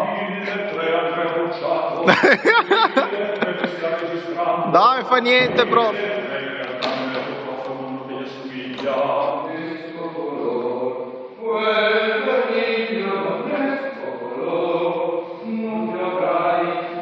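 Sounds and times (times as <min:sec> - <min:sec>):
voices chanting held notes: 0:05.4 - 0:17.0.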